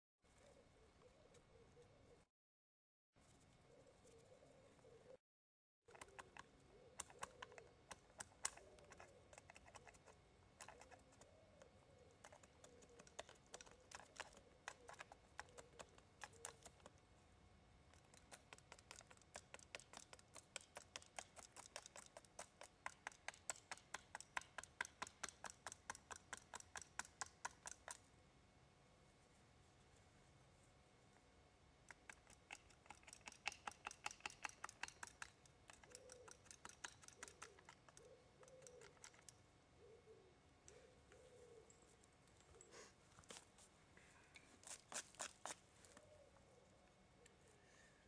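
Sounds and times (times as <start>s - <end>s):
knife carving wood clicks: 5.9s - 11.3s, 18.0s - 28.0s, 31.9s - 39.4s.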